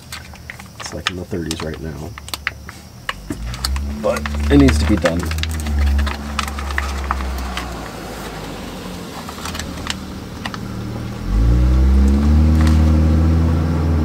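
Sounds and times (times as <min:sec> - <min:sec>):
low engine hum: 0:03.1 - 0:14.0
vehicle engine revving: 0:03.1 - 0:14.0.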